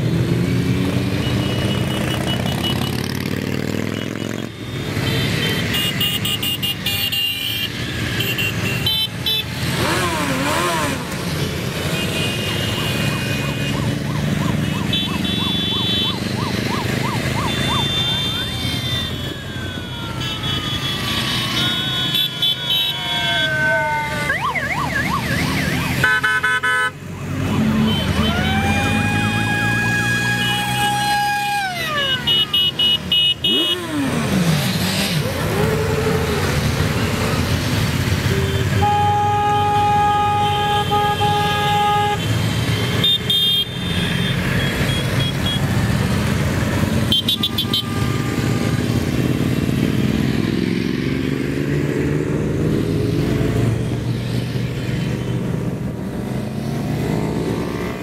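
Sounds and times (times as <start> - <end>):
vehicle engines running: 0.0 - 58.0
vehicle horns blasting: 1.1 - 14.0, 14.6 - 16.3, 17.4 - 19.4, 20.0 - 23.6, 25.9 - 27.0, 30.3 - 34.2, 38.1 - 45.9, 46.9 - 49.9.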